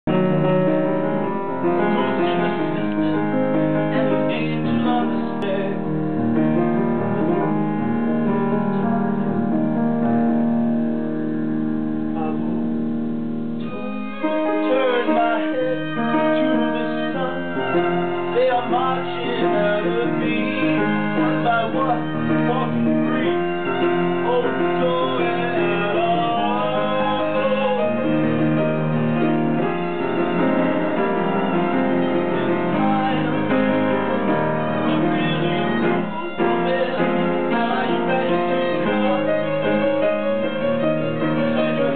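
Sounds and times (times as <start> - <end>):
piano playing sustained chords: 0.0 - 41.9
man singing: 1.6 - 6.4, 12.2 - 12.6, 13.6 - 30.6, 31.3 - 41.9.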